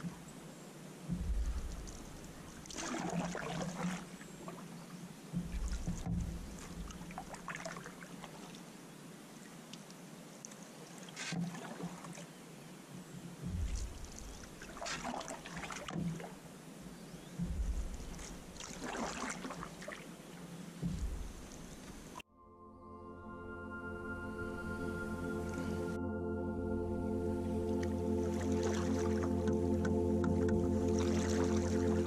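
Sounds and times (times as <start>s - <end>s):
paddle strokes in water: 0.0s - 8.8s, 9.4s - 22.2s, 27.7s - 32.0s
water splashes and drips: 0.0s - 22.2s, 27.6s - 32.0s
low thumps: 1.1s - 3.3s, 5.3s - 7.3s, 13.4s - 15.1s, 15.8s - 19.7s, 20.8s - 22.2s, 24.5s - 32.0s.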